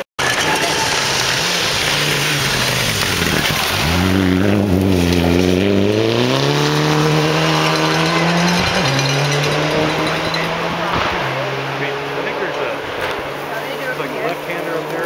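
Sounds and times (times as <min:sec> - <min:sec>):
rally car engine revving: 0:00.0 - 0:15.0.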